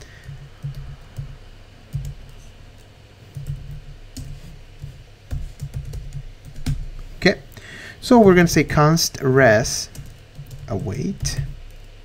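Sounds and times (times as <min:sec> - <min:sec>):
typing on computer keyboard: 0:00.2 - 0:06.9, 0:09.8 - 0:11.9.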